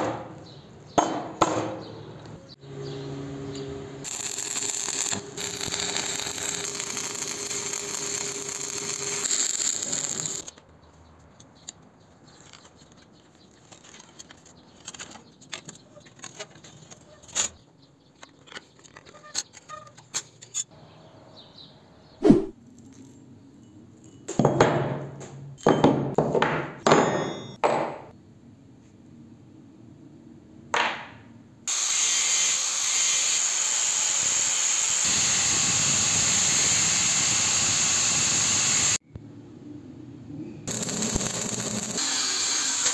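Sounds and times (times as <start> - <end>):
cut-off wheel grinding steel: 2.8 - 10.5, 40.7 - 42.9
stick welding crackling: 4.0 - 10.6, 31.7 - 39.0, 40.7 - 42.9.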